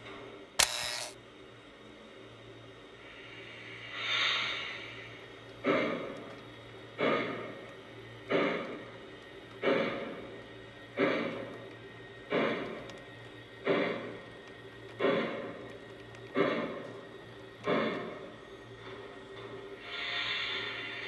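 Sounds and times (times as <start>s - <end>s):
steady low hum: 0.0s - 21.0s
toy train rolling on track: 0.6s - 1.2s
regular track clack: 5.5s - 19.8s.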